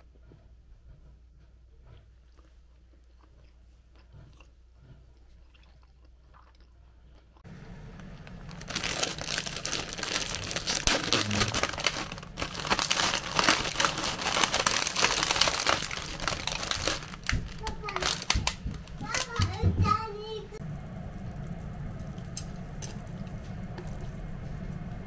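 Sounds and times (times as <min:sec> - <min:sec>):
plastic packet crinkling: 0:08.0 - 0:19.4.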